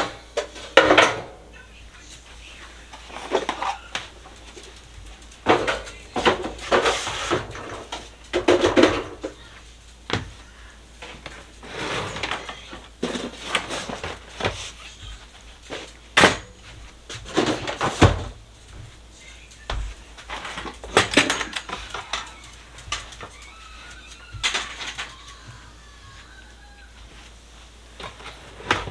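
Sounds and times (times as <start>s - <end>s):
plastic baskets clattering: 3.0s - 9.4s, 11.0s - 19.0s, 19.8s - 25.6s, 27.9s - 28.9s.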